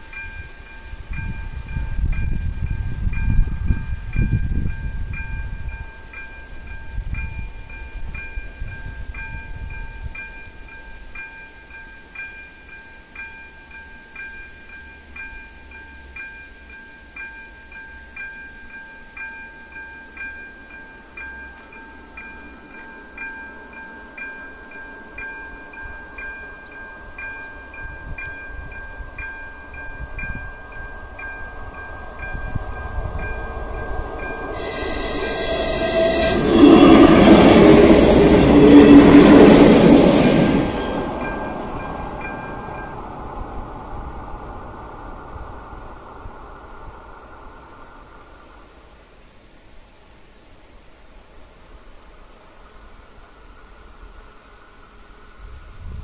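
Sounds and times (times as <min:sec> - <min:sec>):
loud rail noise: 0:00.0 - 0:49.0
diesel railcar rumbling: 0:19.7 - 0:48.2.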